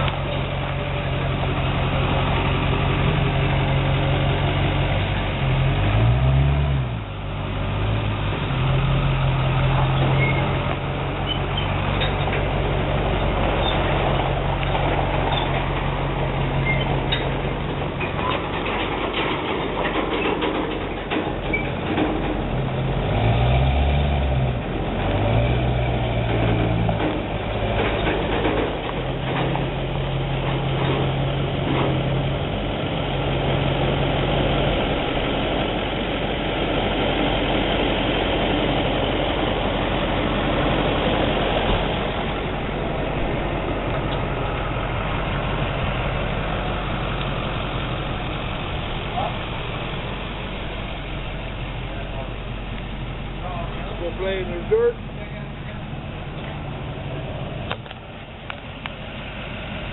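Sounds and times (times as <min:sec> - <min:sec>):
truck engine running: 0:00.0 - 0:59.9
trailer knocking and rattling on gravel: 0:09.7 - 0:23.0, 0:26.2 - 0:32.8.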